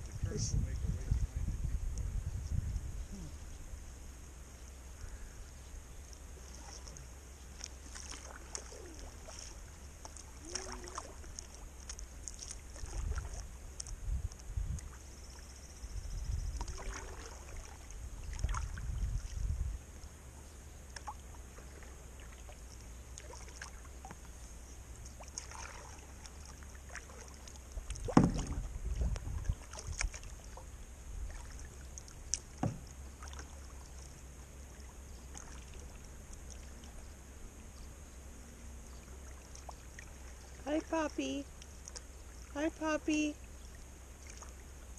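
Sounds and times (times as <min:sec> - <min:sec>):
paddle strokes and splashes: 0:03.0 - 0:44.9
hull rumbling and knocking: 0:27.8 - 0:31.4, 0:32.4 - 0:33.3.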